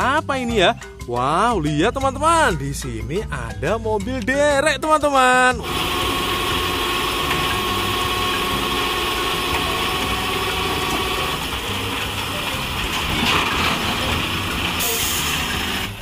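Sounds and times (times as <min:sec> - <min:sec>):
diesel engine running under load: 0:05.5 - 0:16.0
thin steady whine: 0:05.6 - 0:11.6
winch cables: 0:05.6 - 0:16.0.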